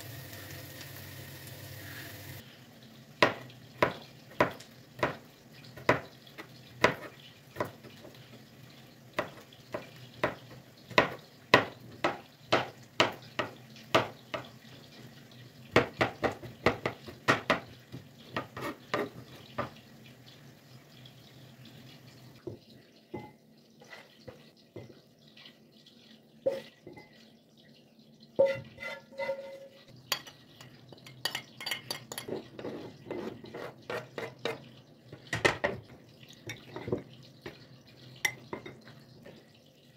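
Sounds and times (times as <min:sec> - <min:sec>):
knife scraping: 0:28.4 - 0:29.9, 0:32.1 - 0:34.6.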